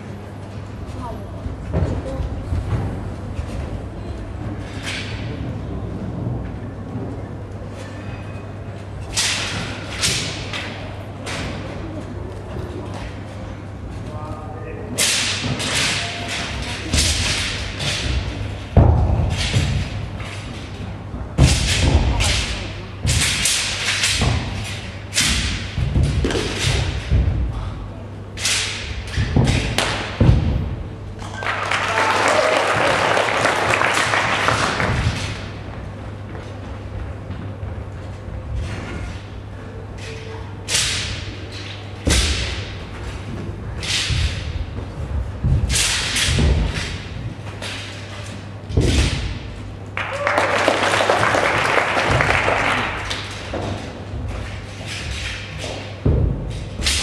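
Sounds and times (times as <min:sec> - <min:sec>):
audience applause: 0:31.4 - 0:34.8, 0:50.0 - 0:53.0.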